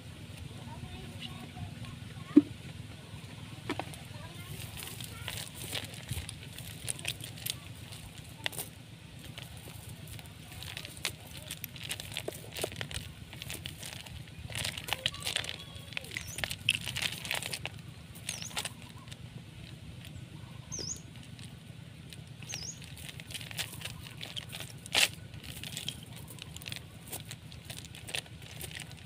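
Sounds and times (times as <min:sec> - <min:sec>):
fishing net rustling and clicking: 0:03.7 - 0:20.2, 0:21.0 - 0:29.0.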